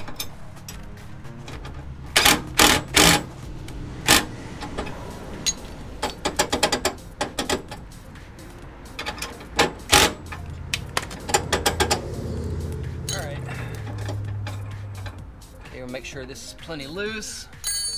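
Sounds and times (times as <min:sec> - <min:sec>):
sharp metal clicks and clinks: 0:08.9 - 0:15.3.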